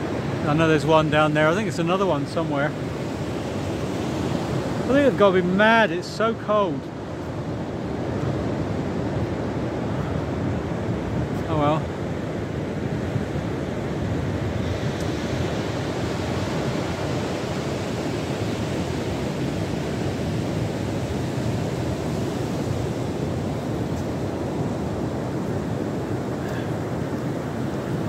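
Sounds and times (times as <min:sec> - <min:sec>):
surf breaking on beach: 0:00.0 - 0:28.0
wind on microphone: 0:06.7 - 0:28.0.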